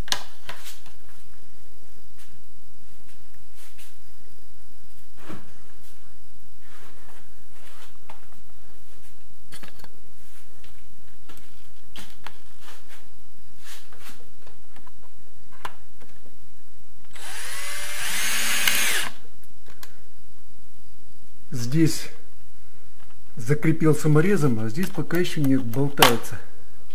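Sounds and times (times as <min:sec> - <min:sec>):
electric screwdriver driving screw: 0:17.1 - 0:19.2.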